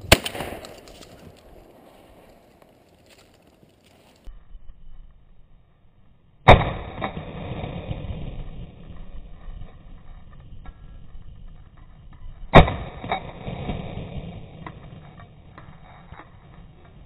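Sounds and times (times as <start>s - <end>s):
loud shotgun shot: 0.0s - 2.4s, 6.5s - 8.0s.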